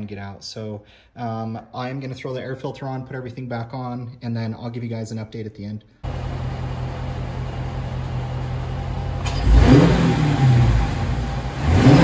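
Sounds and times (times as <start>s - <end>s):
car engine idling and revving: 6.0s - 12.0s.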